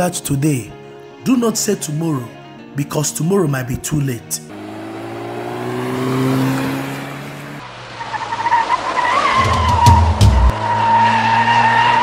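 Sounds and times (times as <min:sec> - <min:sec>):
low engine hum: 0:04.5 - 0:08.4
car tyres screeching: 0:04.5 - 0:12.0.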